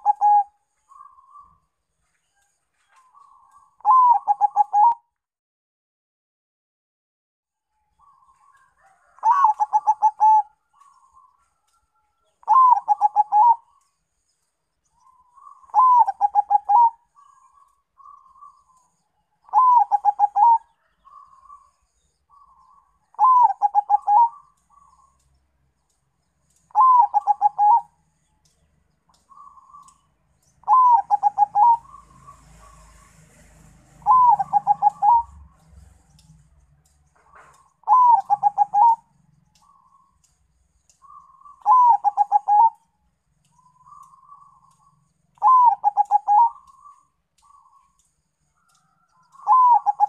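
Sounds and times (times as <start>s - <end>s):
dove cooing: 0.0s - 1.6s, 3.1s - 5.0s, 8.0s - 11.3s, 12.4s - 13.8s, 15.0s - 18.8s, 19.4s - 21.7s, 22.3s - 25.2s, 26.6s - 28.0s, 30.6s - 33.1s, 34.0s - 35.5s, 37.2s - 40.2s, 41.0s - 42.8s, 45.4s - 48.0s, 48.8s - 50.0s.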